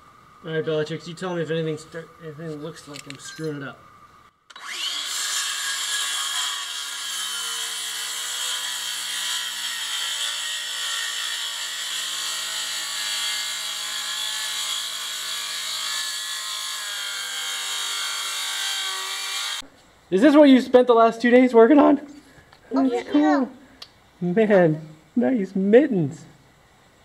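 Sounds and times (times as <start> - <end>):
circular saw cutting wood: 4.5 - 19.6.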